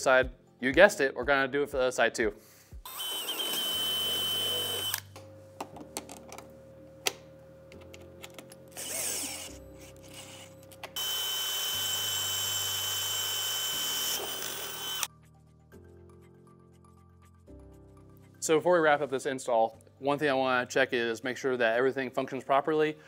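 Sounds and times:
drill whining through metal: 0:02.9 - 0:05.1, 0:08.8 - 0:15.1.

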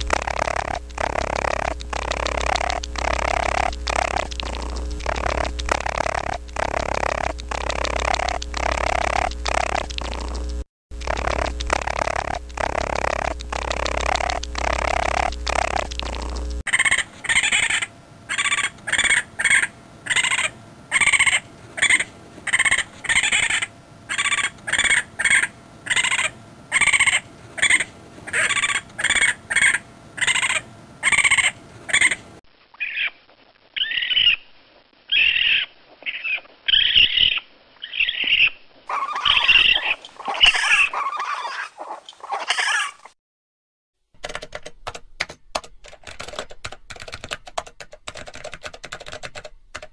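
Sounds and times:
rapid keyboard clicking: 0:00.0 - 0:16.6, 0:44.2 - 0:49.9
raccoon chirping and chittering: 0:00.1 - 0:10.2, 0:11.1 - 0:32.2, 0:32.8 - 0:33.2, 0:33.8 - 0:34.4, 0:35.1 - 0:43.0.

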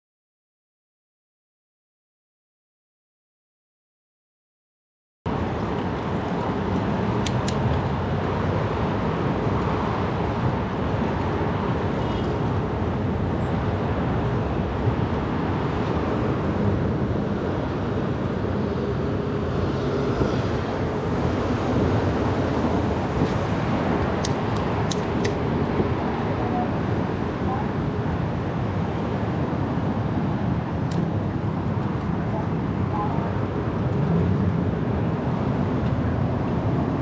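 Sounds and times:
bicycle road noise: 0:05.3 - 0:37.0
wind rushing: 0:12.5 - 0:37.0.

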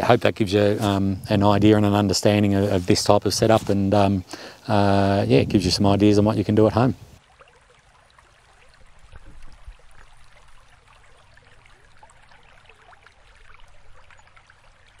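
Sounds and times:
water trickling and bubbling: 0:07.0 - 0:15.0.

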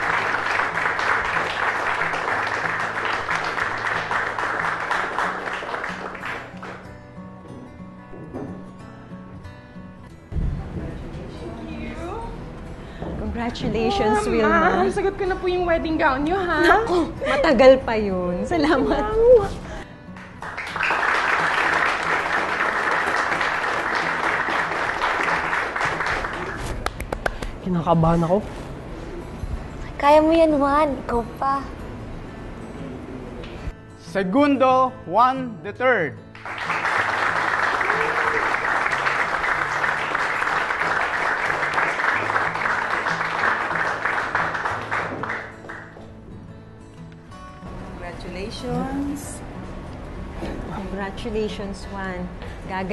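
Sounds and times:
audience applauding: 0:00.0 - 0:06.9, 0:20.2 - 0:27.5, 0:36.3 - 0:46.1.

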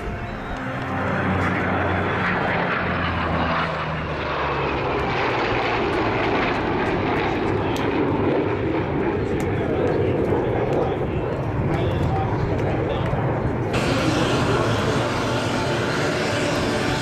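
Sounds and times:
jet engine noise: 0:00.0 - 0:17.0
propeller engines droning: 0:00.0 - 0:17.0.

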